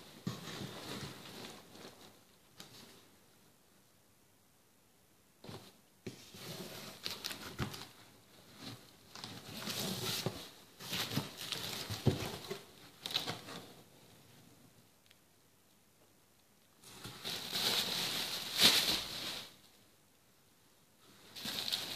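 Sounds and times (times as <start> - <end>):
cardboard and tape rustling: 0.2 - 3.1, 5.4 - 13.8, 16.8 - 19.6, 21.3 - 21.9.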